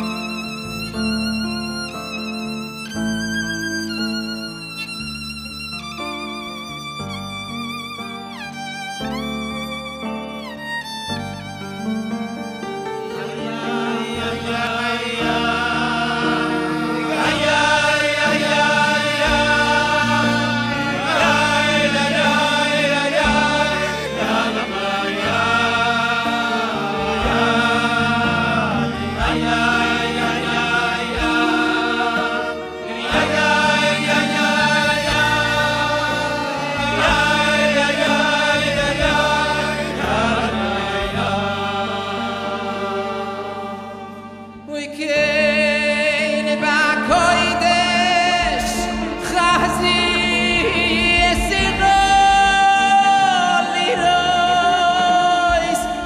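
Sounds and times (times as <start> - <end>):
instrumental backing music: 0.0 - 56.0
men singing together: 13.2 - 44.2, 45.1 - 56.0.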